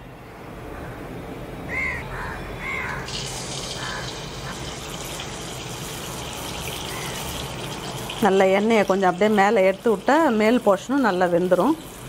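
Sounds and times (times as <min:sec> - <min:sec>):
bird calling: 0:01.7 - 0:03.2, 0:06.9 - 0:07.3
oil sizzling: 0:02.8 - 0:12.0.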